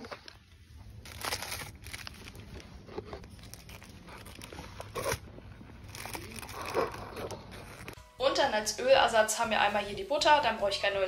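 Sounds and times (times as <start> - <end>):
plastic packaging crinkling: 0.0 - 8.0.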